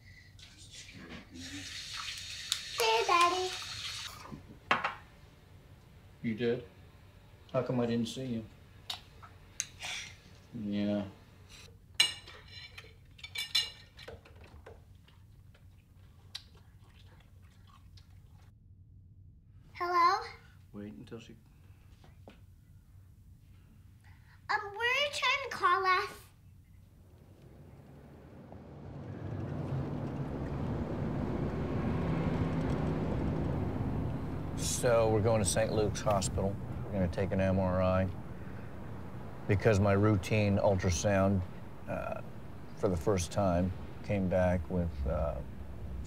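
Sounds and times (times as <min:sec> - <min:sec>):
vehicle rumble: 0:26.5 - 0:46.0.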